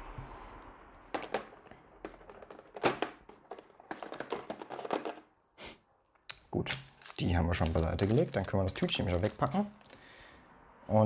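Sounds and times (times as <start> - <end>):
plastic pieces tapping on table: 1.2 - 5.2.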